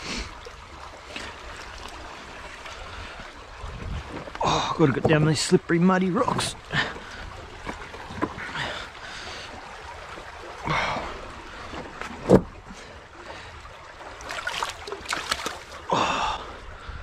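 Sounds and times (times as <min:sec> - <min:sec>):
river water lapping among rocks: 0:00.0 - 0:17.0.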